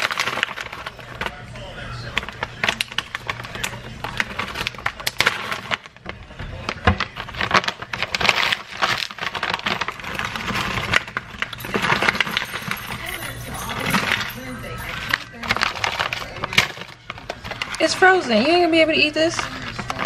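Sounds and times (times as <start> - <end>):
background chatter: 0.0 - 20.0
cutlery and dishes clattering: 10.1 - 16.8.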